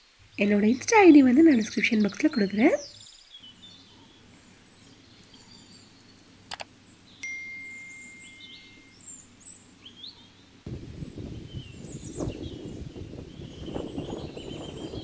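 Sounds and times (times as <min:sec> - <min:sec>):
small birds chirping: 0:00.0 - 0:15.0
clicks: 0:06.5 - 0:06.7
clear ringing tone: 0:07.2 - 0:09.2
wind buffeting microphone: 0:10.6 - 0:15.0.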